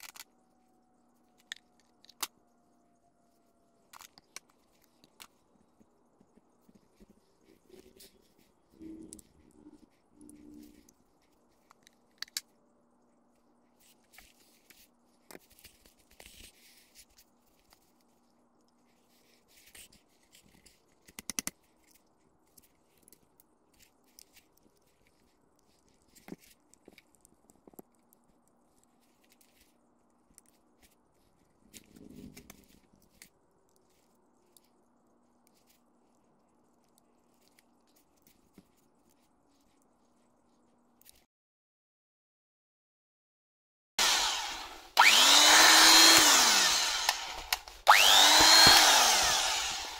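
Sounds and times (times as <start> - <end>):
faint steady hum: 0.0 - 41.2
screwdriver clicking and scraping: 44.0 - 49.9.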